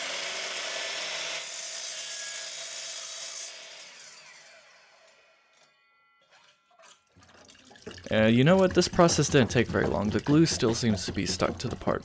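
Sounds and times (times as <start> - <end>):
miter saw cutting aluminum: 0.0 - 5.8
saw blade winding down: 0.0 - 5.8.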